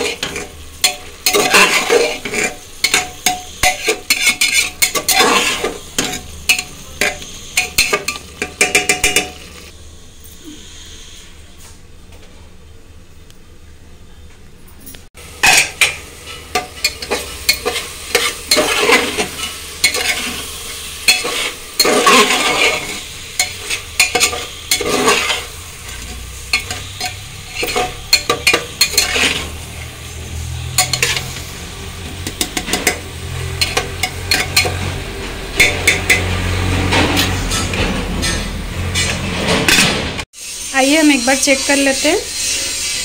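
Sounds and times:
spoon scraping pot: 0.0 - 9.7, 15.4 - 29.8, 30.6 - 39.9
food sizzling: 0.0 - 11.6, 15.1 - 43.0.

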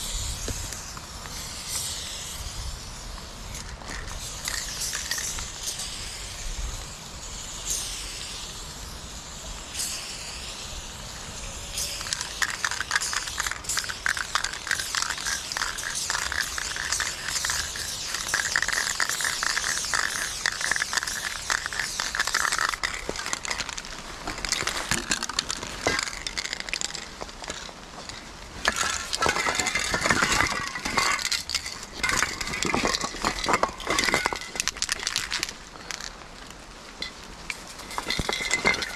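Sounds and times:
aerosol spray can hissing: 0.0 - 35.4
dry leaves crunching underfoot: 13.1 - 38.9.

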